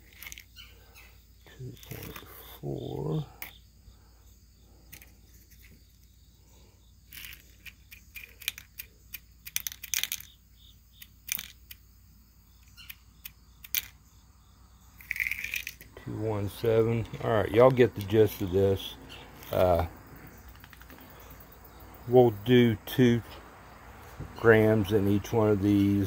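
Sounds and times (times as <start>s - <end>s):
metal pellets rattling into plastic cup: 15.0s - 15.9s.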